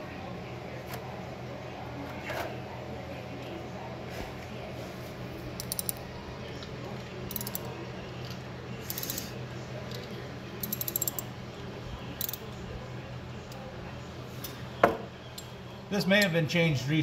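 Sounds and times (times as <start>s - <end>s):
socket ratchet clicking: 5.6s - 6.0s, 7.3s - 7.7s, 10.6s - 11.3s, 12.2s - 12.4s.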